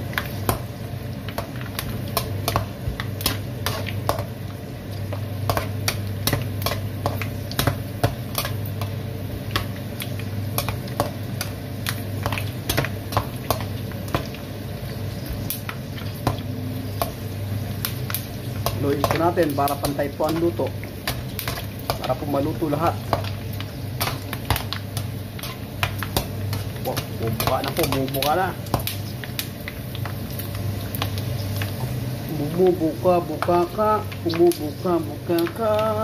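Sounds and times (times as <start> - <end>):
pork skin sizzling in oil: 0.0 - 36.0
steady low hum: 0.0 - 36.0
metal utensil stirring: 24.0 - 29.0.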